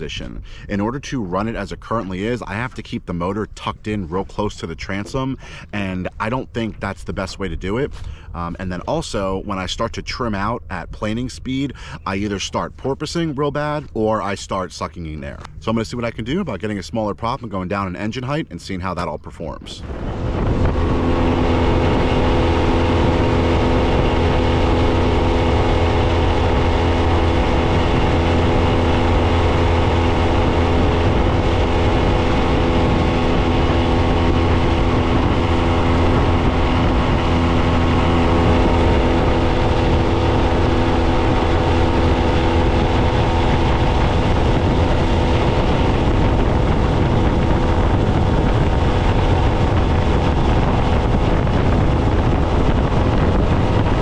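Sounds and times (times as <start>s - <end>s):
outboard engine running: 0.0s - 18.2s, 19.8s - 54.0s
wind on microphone: 0.0s - 54.0s
water rushing from wake: 19.8s - 54.0s.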